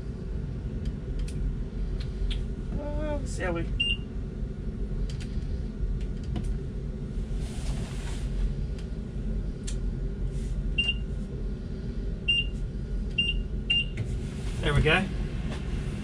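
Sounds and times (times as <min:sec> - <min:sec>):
steady low hum: 0:00.0 - 0:16.0
microwave keypad beeps: 0:10.8 - 0:11.0.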